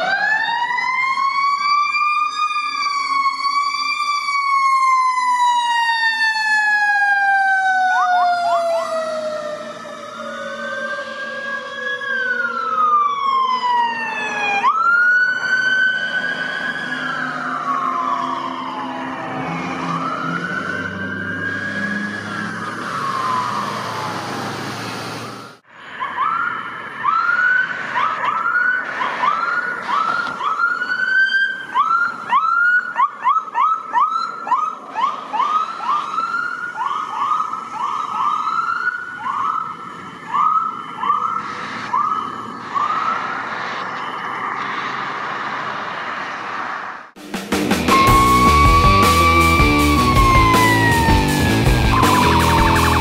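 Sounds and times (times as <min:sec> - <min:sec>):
police siren fast yelp: 0:00.0 - 0:24.7, 0:25.9 - 0:44.7, 0:47.8 - 0:53.0
siren slow electronic wail: 0:00.0 - 0:47.1, 0:47.8 - 0:53.0.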